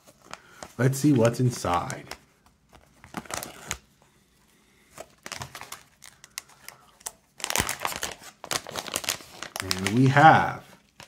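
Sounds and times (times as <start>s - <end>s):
foil pouch crinkling: 0.0s - 3.9s, 4.8s - 11.0s.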